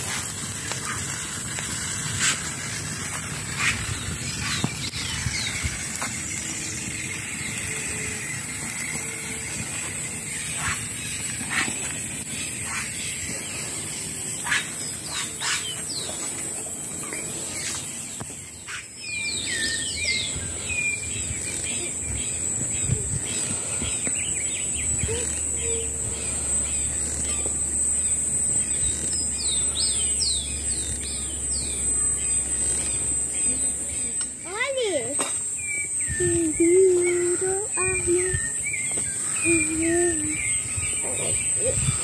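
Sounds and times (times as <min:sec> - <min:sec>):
sharp cracks and clicks: 0:00.0 - 0:03.8
high insect drone: 0:00.0 - 0:42.0
bird chirps: 0:03.6 - 0:42.0.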